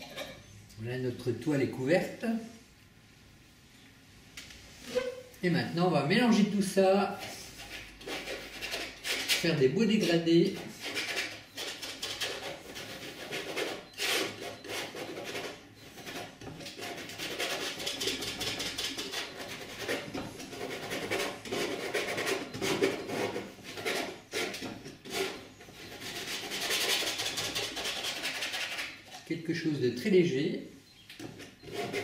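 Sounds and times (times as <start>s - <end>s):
painting knife scraping canvas: 4.7s - 5.3s, 6.3s - 29.3s, 31.1s - 32.0s.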